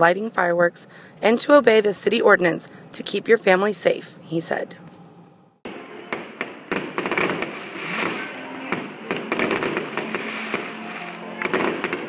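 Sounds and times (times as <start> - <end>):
fireworks bangs: 5.7 - 12.0
fireworks popping and crackling: 6.1 - 12.0.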